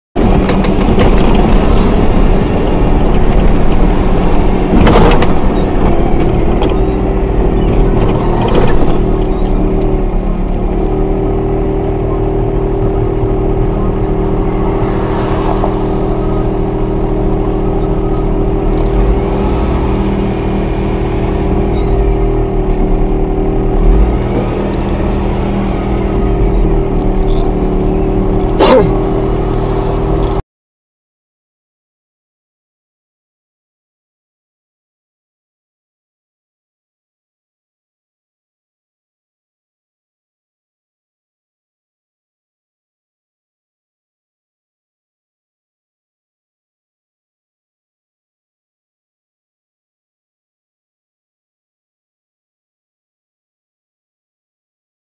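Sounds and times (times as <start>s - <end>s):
engine and road rumble: 0.2s - 30.4s.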